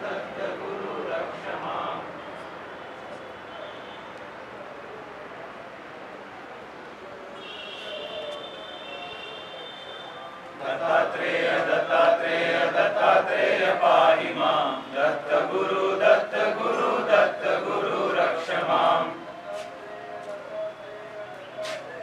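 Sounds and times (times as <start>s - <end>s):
group of voices chanting: 0.0s - 2.2s, 10.6s - 19.2s.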